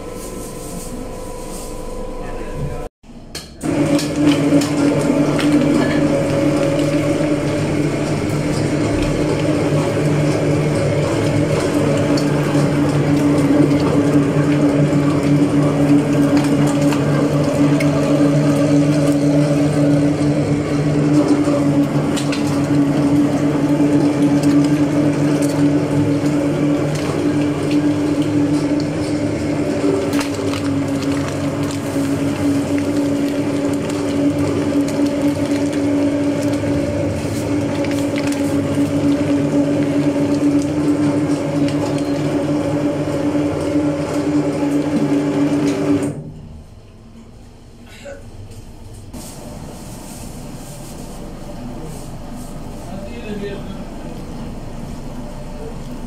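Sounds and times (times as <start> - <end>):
electric meat grinder running: 3.6 - 46.2.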